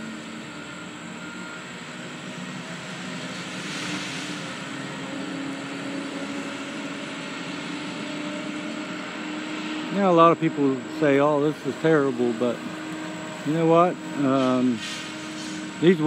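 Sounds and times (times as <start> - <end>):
heavy machine engine running: 0.0 - 16.0
hissing noise: 13.4 - 16.0.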